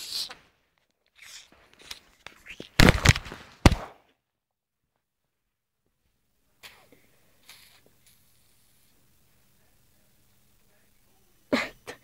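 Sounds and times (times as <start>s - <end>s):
camera handling rustling: 1.7s - 3.4s.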